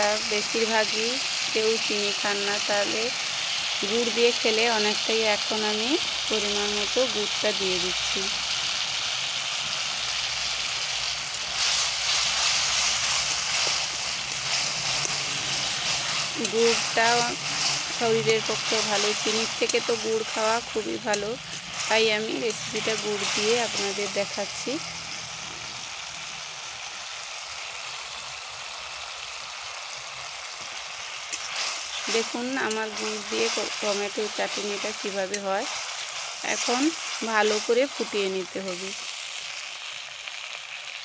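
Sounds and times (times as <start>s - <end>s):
chutney sizzling in oil: 0.0s - 41.0s.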